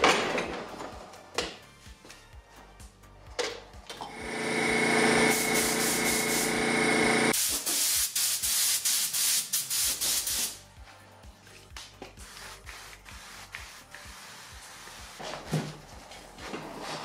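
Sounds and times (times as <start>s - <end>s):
pulsing high hiss: 4.2s - 7.3s
spray gun hissing: 4.9s - 10.6s.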